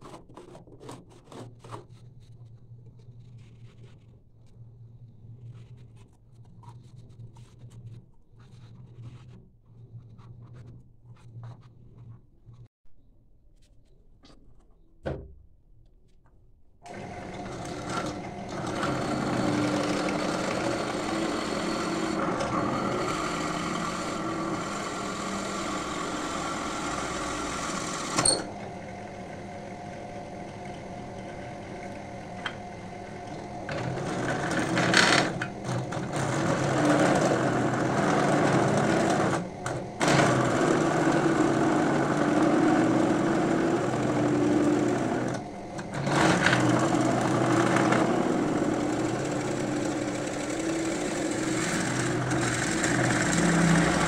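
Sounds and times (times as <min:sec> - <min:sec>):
drill press drilling shell: 0:16.9 - 0:54.0.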